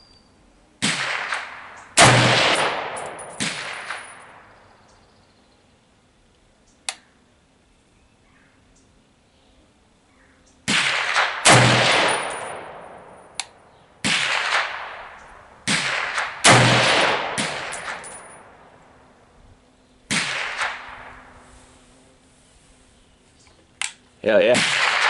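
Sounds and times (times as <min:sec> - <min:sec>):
rifle shots echoing: 0:00.8 - 0:04.6, 0:10.7 - 0:13.4, 0:14.0 - 0:19.0, 0:20.1 - 0:21.3, 0:24.4 - 0:25.0.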